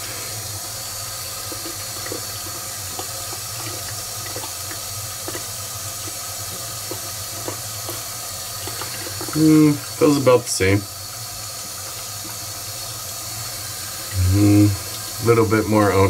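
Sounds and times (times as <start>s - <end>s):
steady rushing hiss: 0.0s - 16.0s
razor shaving stubble: 0.9s - 10.4s.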